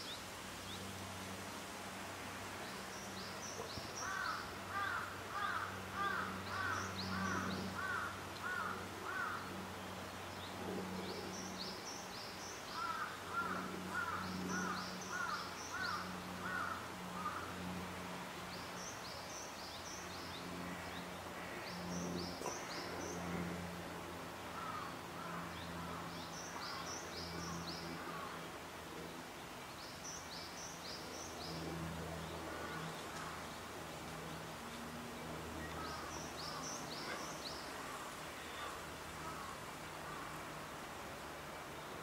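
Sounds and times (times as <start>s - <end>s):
steady low hum: 0.0s - 42.0s
wild birds calling: 2.9s - 9.6s, 11.0s - 17.8s, 18.6s - 28.6s, 30.0s - 33.7s, 35.4s - 40.8s.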